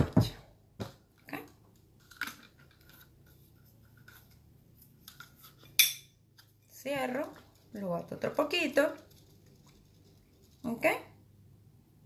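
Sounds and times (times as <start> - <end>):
threads scratching and ticking: 6.4 - 11.2.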